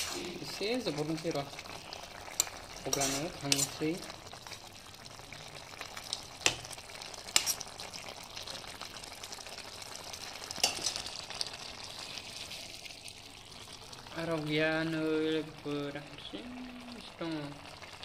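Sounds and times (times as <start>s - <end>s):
food sizzling in a pan: 0.0s - 18.0s.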